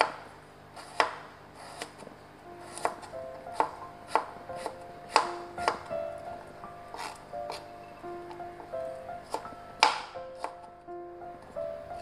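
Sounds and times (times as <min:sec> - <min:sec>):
knife chopping on cutting board: 0:00.0 - 0:05.9, 0:06.9 - 0:07.7, 0:09.3 - 0:10.7
background music: 0:02.4 - 0:12.0.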